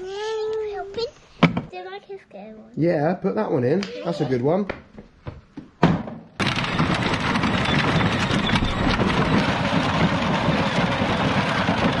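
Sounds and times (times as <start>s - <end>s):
plastic wheels crunching on gravel: 6.4s - 12.0s.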